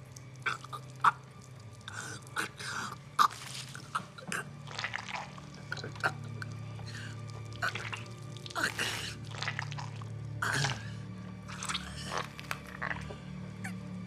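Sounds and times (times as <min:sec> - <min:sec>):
dripping clicks: 0:00.0 - 0:08.7
man gurgling and gasping: 0:07.6 - 0:09.5.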